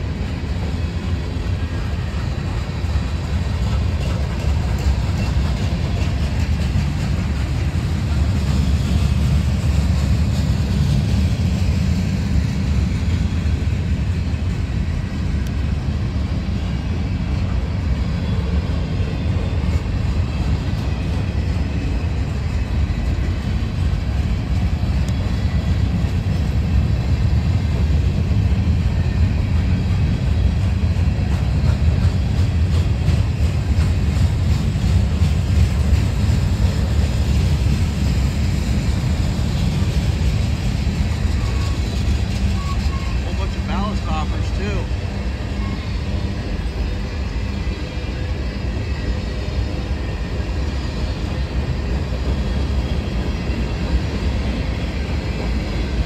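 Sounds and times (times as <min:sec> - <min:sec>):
freight cars rolling on rails: 0:00.0 - 0:56.0.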